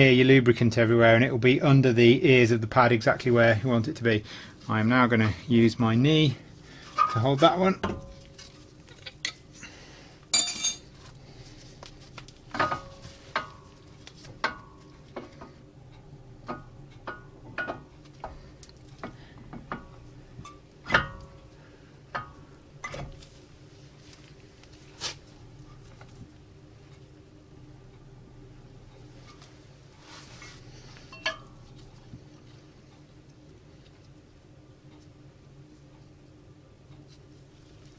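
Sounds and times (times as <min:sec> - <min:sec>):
metallic clinks and knocks: 0:10.4 - 0:10.9.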